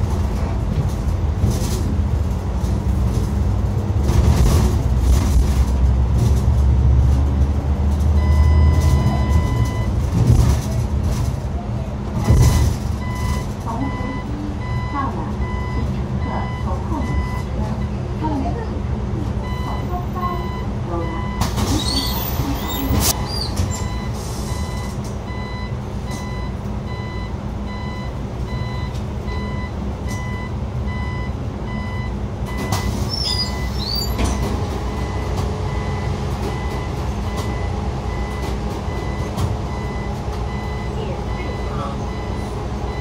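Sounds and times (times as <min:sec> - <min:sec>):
bus engine rumble: 0:00.0 - 0:43.0
short electronic beeps: 0:08.2 - 0:09.9, 0:12.5 - 0:17.5.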